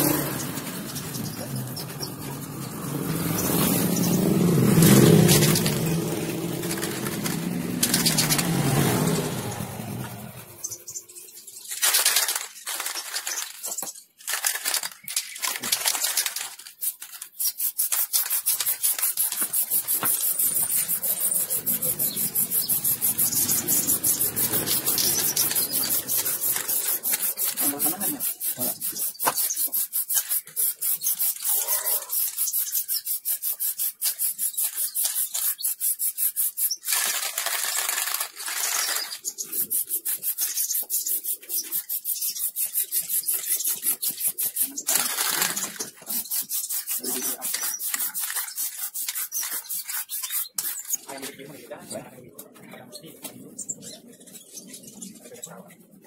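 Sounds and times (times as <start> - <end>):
spray can rattling: 0.0 - 10.7, 11.5 - 51.4.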